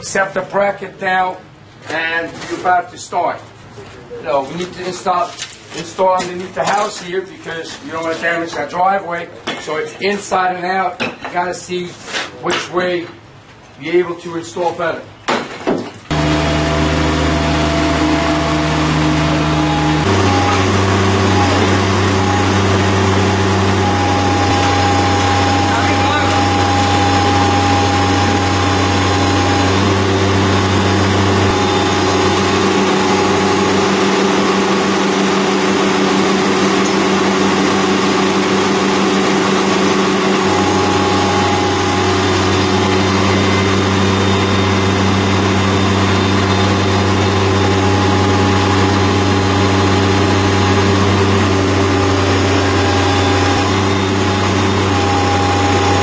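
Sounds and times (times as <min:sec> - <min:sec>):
higher mechanical tone: 0:16.1 - 0:56.0
loader engine running: 0:16.1 - 0:56.0.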